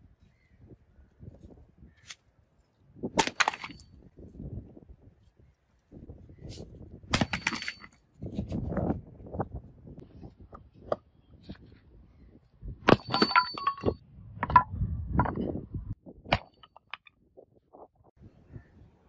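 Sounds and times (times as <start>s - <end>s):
axe striking bricks: 3.2s - 3.8s, 7.1s - 8.0s, 12.9s - 13.9s.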